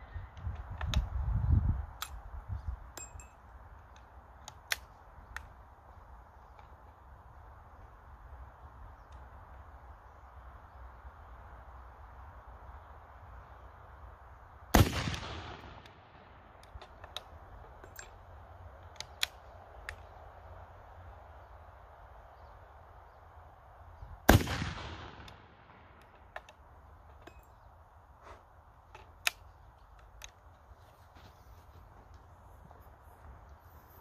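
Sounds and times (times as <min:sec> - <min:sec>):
rifle shots with echo: 0:14.7 - 0:16.4, 0:24.3 - 0:26.0.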